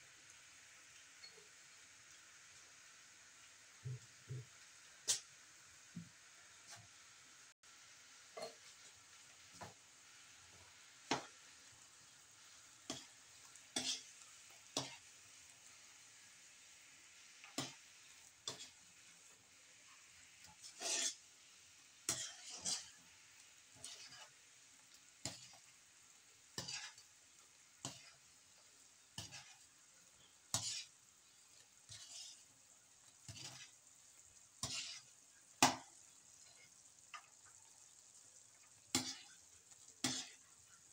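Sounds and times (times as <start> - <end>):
syrup bubbling sizzle: 0.0 - 40.9
metal spatula scraping wok: 12.8 - 15.6, 17.4 - 19.2, 19.8 - 21.3, 22.0 - 23.1, 23.7 - 24.4, 25.2 - 25.7, 26.5 - 27.1, 27.8 - 33.8, 34.6 - 37.2, 38.9 - 39.4, 40.0 - 40.5.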